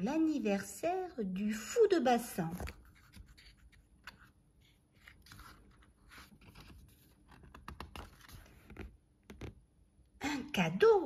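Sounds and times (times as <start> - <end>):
book page turning: 2.4 - 9.6.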